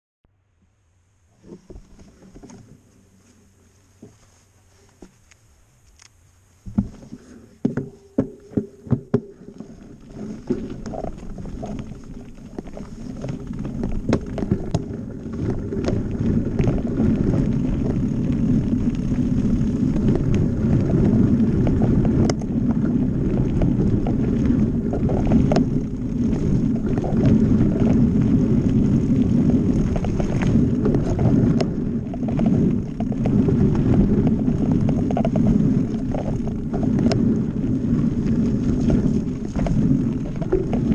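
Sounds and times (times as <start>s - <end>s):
bike tyres rumbling over gravel: 1.3s - 5.2s, 6.6s - 40.9s
wind on microphone: 6.6s - 40.9s
bike clicks and knocks: 7.6s - 9.4s, 12.6s - 37.5s.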